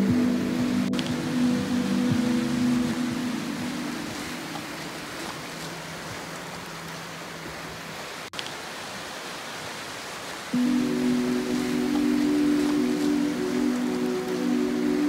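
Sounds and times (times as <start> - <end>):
background music: 0.0 - 5.5, 10.6 - 15.0
waves washing on rocky shore: 1.0 - 8.2, 9.0 - 15.0.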